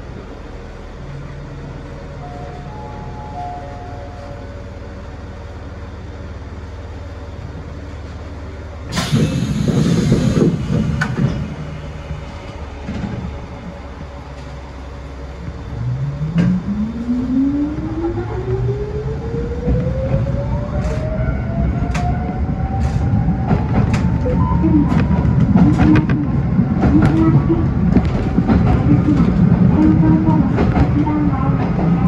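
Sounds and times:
train running rumble: 0.0s - 32.0s
train motor whine rising: 8.9s - 24.0s.

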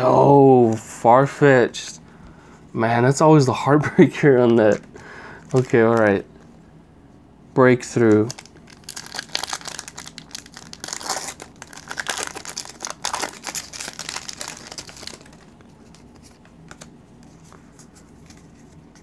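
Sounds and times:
foil wrapper tearing and crinkling: 8.2s - 16.1s.

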